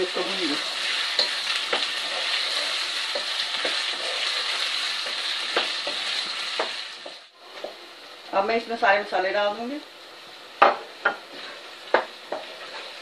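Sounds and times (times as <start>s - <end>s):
wooden spoon scraping a pan: 0.0s - 7.2s, 11.1s - 13.0s
vegetables sizzling in hot oil: 0.0s - 13.0s.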